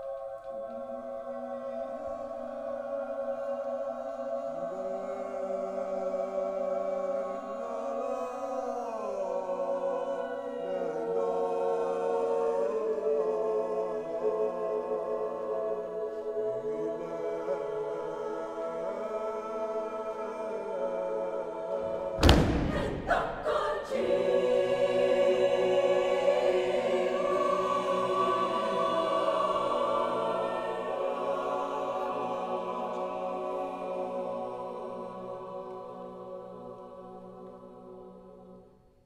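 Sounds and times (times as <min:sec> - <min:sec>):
choir singing sustained chords: 0:00.0 - 0:39.0
loud percussive hits: 0:22.2 - 0:23.9.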